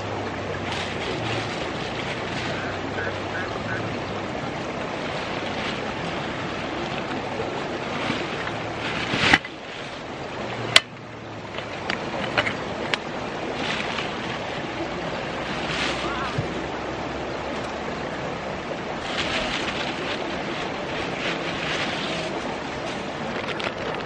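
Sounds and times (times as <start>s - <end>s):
flowing river: 0.0s - 24.0s
camping gear clicking and knocking: 10.7s - 14.1s, 22.9s - 24.0s.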